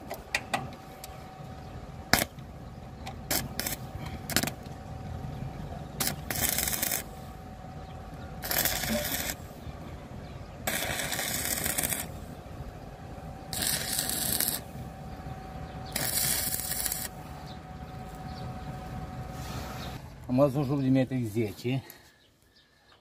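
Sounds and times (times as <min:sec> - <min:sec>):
faint steady whine: 0:00.0 - 0:22.8
arc welding crackling: 0:02.0 - 0:04.9, 0:05.8 - 0:09.7, 0:10.4 - 0:18.2.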